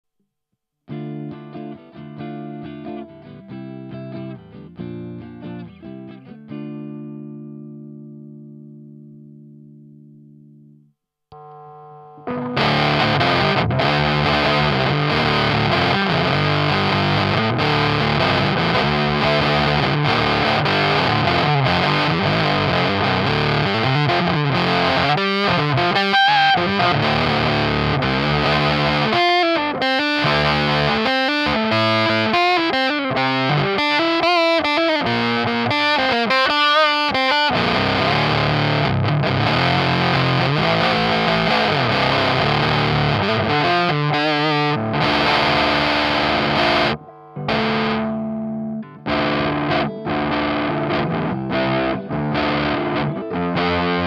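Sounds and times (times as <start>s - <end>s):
heavily fuzzed electric guitar: 11.3s - 54.0s.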